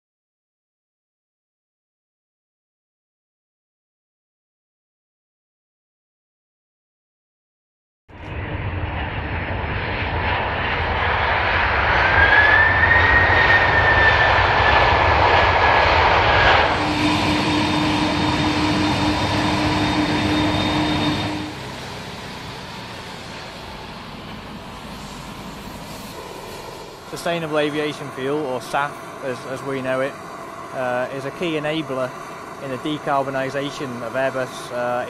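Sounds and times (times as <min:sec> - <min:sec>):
jet engines running: 0:08.1 - 0:35.0
rising engine whine: 0:08.1 - 0:35.0.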